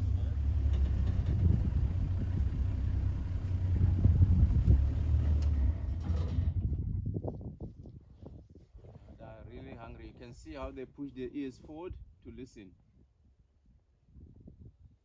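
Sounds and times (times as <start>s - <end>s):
vehicle engine droning: 0.0s - 7.1s.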